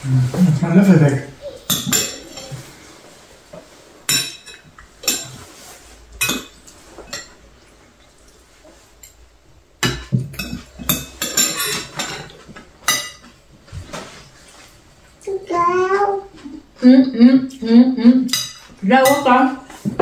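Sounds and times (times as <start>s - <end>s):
utensils clinking on ceramic bowls: 1.7s - 2.6s, 4.1s - 5.5s, 6.2s - 7.4s, 9.8s - 13.4s, 18.3s - 20.0s.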